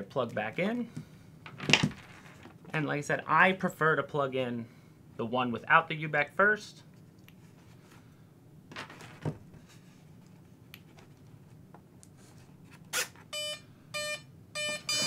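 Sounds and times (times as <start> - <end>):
short electronic beeps: 13.4 - 15.0.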